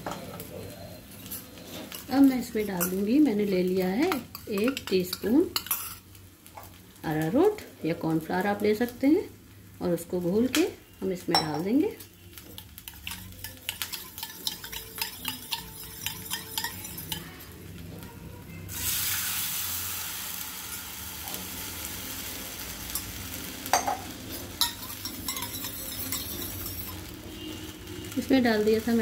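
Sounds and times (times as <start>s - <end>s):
hot oil sizzling and bubbling: 0.0s - 29.0s
spoon clinking against steel bowl: 11.3s - 11.6s, 12.6s - 17.3s, 24.6s - 27.1s.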